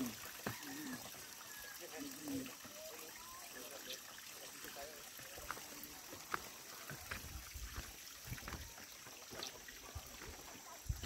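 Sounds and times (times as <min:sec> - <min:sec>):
footsteps on stone: 0:05.4 - 0:11.0.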